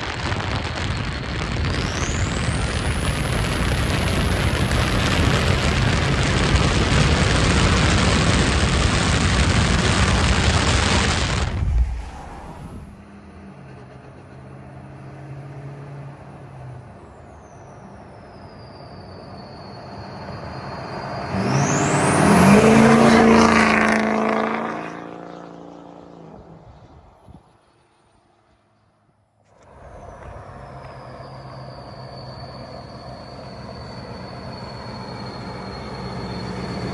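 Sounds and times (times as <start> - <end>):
diesel truck engine at full throttle: 0.0 - 17.4, 29.5 - 36.9
high turbo whistle: 17.0 - 25.2, 29.6 - 36.9.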